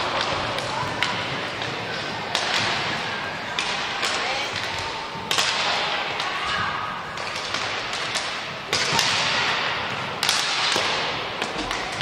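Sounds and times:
skate wheels rolling: 0:00.0 - 0:12.0
sticks and puck clacking: 0:00.0 - 0:12.0.

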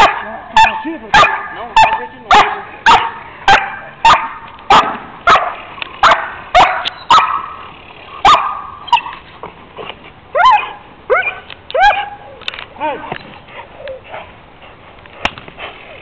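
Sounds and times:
dog barking: 0:00.0 - 0:07.6, 0:08.2 - 0:09.1, 0:10.4 - 0:12.2
dog whining yelp: 0:08.8 - 0:09.2.

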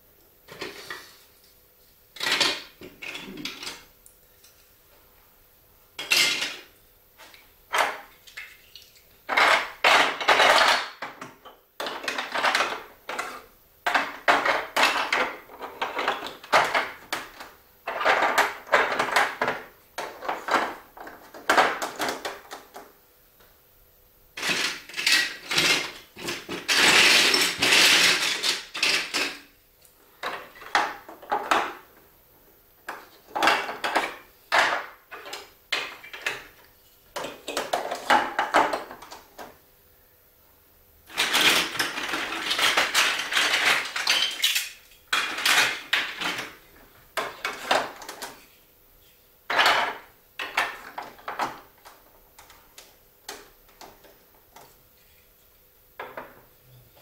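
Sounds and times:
plastic pieces clattering: 0:09.3 - 0:22.7, 0:24.4 - 0:29.5, 0:32.9 - 0:36.5, 0:41.1 - 0:46.6, 0:47.2 - 0:48.5, 0:49.5 - 0:54.0.

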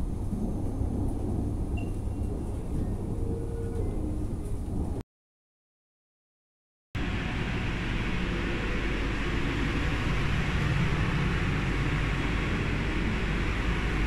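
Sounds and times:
train machinery rumble and hiss: 0:00.0 - 0:05.0, 0:07.0 - 0:14.0.

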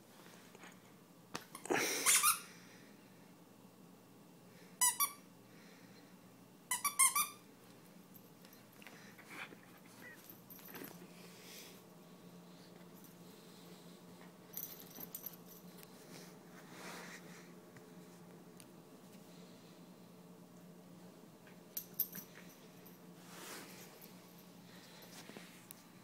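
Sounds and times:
squeaky dog toy squeaking: 0:06.7 - 0:07.4.

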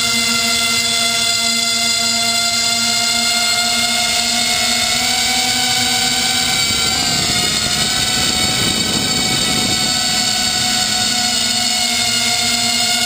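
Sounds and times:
quadcopter motors whining: 0:00.0 - 0:13.0
rushing noise: 0:05.5 - 0:12.1.

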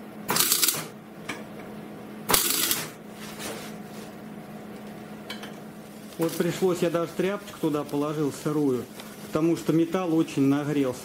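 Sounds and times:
steady low hum: 0:00.0 - 0:11.0
welder arc crackling: 0:00.3 - 0:00.9, 0:02.3 - 0:03.0.

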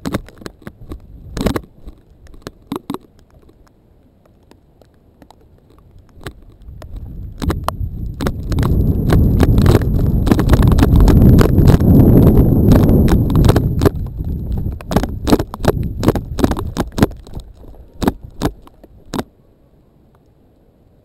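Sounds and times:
wind rumble on microphone: 0:00.0 - 0:03.7, 0:04.4 - 0:19.3
footsteps: 0:04.3 - 0:19.3.

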